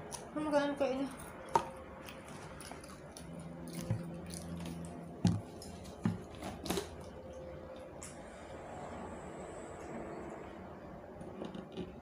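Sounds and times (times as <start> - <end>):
chewing and mouth sounds: 1.1 - 7.9.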